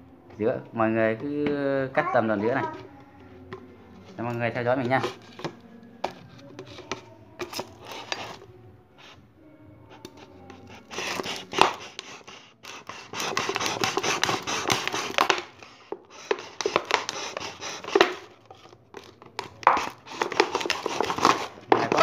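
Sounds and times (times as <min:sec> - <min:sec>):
knife sawing through plastic bottle: 0:04.8 - 0:05.5, 0:06.6 - 0:08.4, 0:10.0 - 0:18.8, 0:19.4 - 0:22.0.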